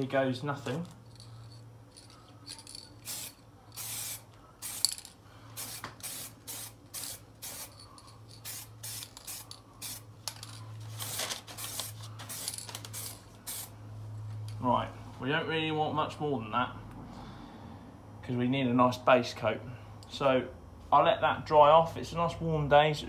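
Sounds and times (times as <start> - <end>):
spray can hissing: 2.6 - 10.1, 11.0 - 13.7.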